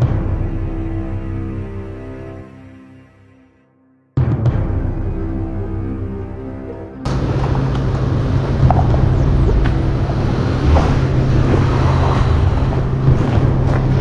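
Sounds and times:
music: 0:00.0 - 0:14.0
low rumble: 0:07.0 - 0:14.0.

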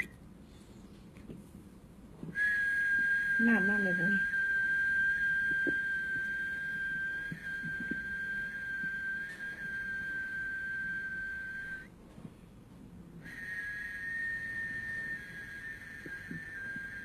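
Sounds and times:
high whistling tone: 0:02.3 - 0:11.9, 0:13.2 - 0:17.0.

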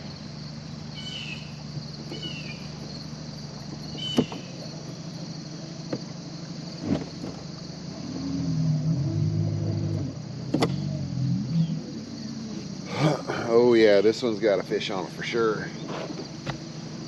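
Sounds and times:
small motor humming: 0:00.0 - 0:12.8.

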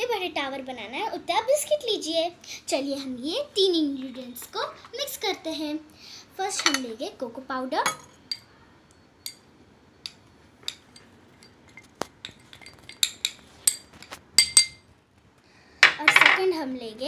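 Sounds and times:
spoon clinking against a bowl: 0:07.8 - 0:14.8.

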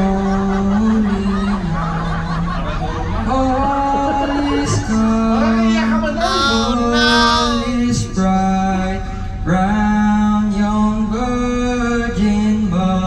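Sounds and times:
man singing into microphone: 0:06.2 - 0:07.8.

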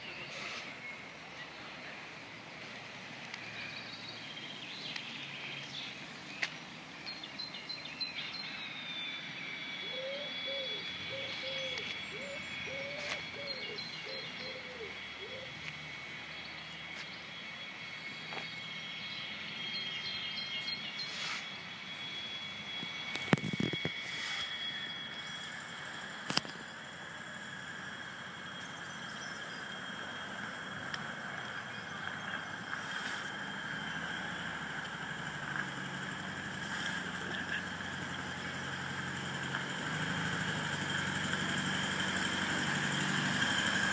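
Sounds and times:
high-pitched whining tones: 0:00.0 - 0:43.9
bird chirps: 0:03.3 - 0:26.9, 0:28.1 - 0:34.8
low repeated calls: 0:07.0 - 0:43.9.

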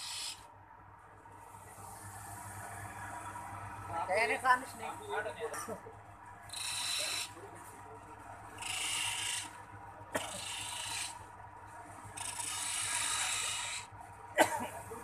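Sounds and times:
chisel scraping spinning wood: 0:00.0 - 0:00.4, 0:06.5 - 0:07.3, 0:08.6 - 0:09.6, 0:10.2 - 0:11.2, 0:12.1 - 0:13.9.

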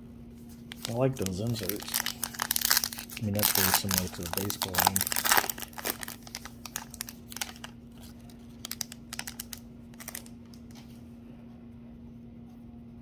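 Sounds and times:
foil card pack crinkling: 0:00.5 - 0:10.7.

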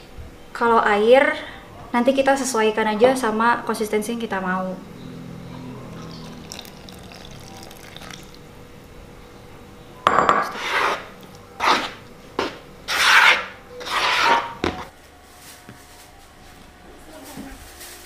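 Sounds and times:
spatula scraping plastic bowl: 0:10.5 - 0:14.6.

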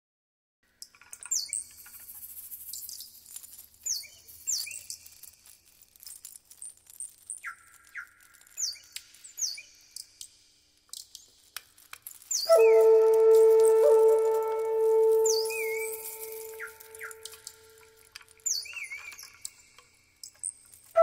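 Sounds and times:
faint background noise: 0:00.6 - 0:21.0
birds whistling falling notes: 0:03.9 - 0:05.1, 0:07.3 - 0:09.8, 0:12.2 - 0:17.8, 0:18.4 - 0:19.7.

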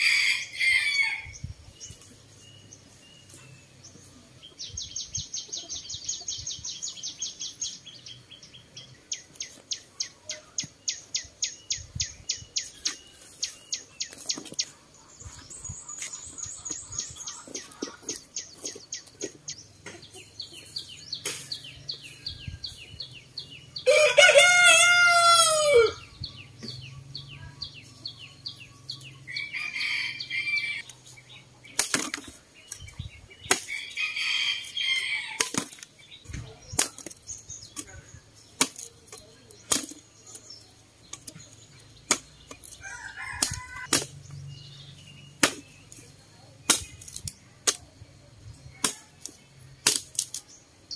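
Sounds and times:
rooster crowing: 0:00.0 - 0:01.4, 0:23.8 - 0:26.0, 0:29.3 - 0:30.8, 0:42.8 - 0:43.9
machete chopping stems: 0:31.7 - 0:33.9, 0:35.4 - 0:35.9, 0:36.7 - 0:37.9, 0:38.6 - 0:40.4, 0:42.0 - 0:42.8, 0:43.4 - 0:44.2, 0:45.4 - 0:46.0, 0:46.6 - 0:47.9, 0:48.8 - 0:50.5.

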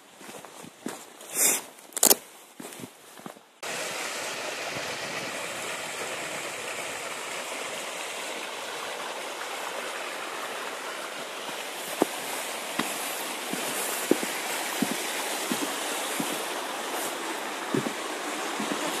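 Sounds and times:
stream rushing over rocks: 0:03.6 - 0:19.0.

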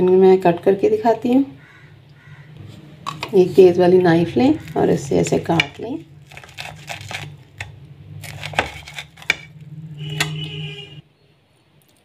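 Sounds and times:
blade scraping on ceramic plate: 0:04.6 - 0:10.4
knife sawing through toasted bread: 0:06.2 - 0:09.5.

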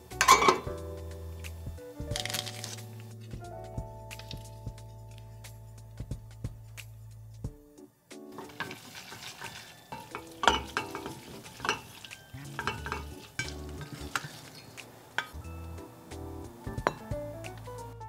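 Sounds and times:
chopsticks tapping metal pot: 0:00.2 - 0:00.7, 0:08.4 - 0:15.4, 0:16.8 - 0:17.2
wet noodles being stirred: 0:08.3 - 0:15.4.

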